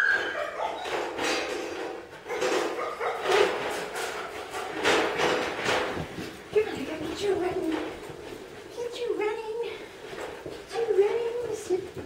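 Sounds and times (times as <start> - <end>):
dog barking: 0.0 - 0.9, 2.3 - 3.5
dog whining: 0.0 - 1.2.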